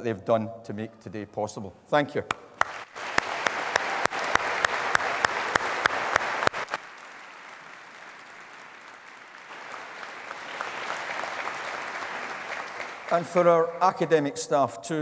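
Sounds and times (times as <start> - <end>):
sharp close hand claps: 2.3 - 13.4
audience applause in a hall: 2.6 - 14.2.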